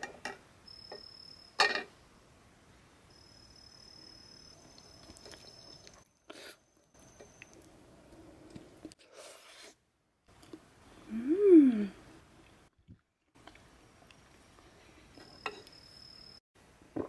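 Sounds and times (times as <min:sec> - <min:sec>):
high insect trill: 0:00.7 - 0:01.6, 0:03.1 - 0:05.9, 0:15.2 - 0:16.4
quiet eating sounds: 0:04.6 - 0:15.8
person humming: 0:11.0 - 0:12.0.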